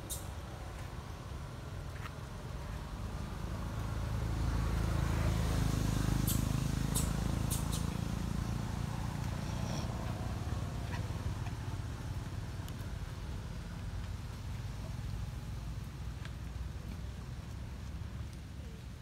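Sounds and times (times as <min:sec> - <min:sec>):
motor vehicle passing: 0:00.0 - 0:18.4.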